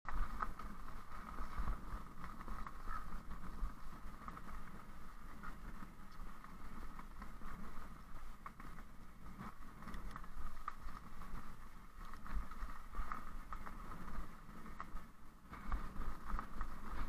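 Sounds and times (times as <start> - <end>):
wind rumbling on microphone: 0.1 - 17.0.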